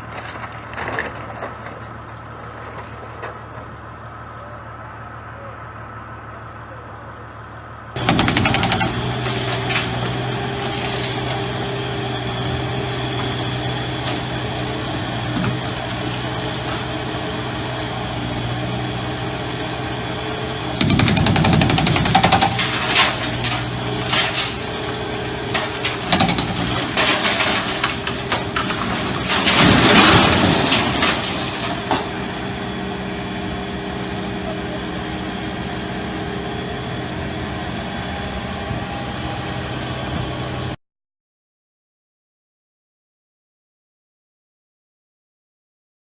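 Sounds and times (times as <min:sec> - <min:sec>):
breaker hammer hammering: 0:08.0 - 0:09.1, 0:20.8 - 0:22.6, 0:26.1 - 0:27.0
knocks and clatter: 0:08.0 - 0:10.0, 0:25.6 - 0:30.2.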